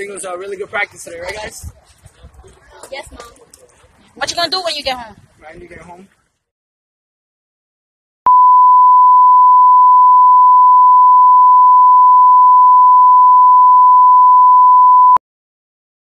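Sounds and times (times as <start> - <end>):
censor bleep tone: 8.3 - 15.2.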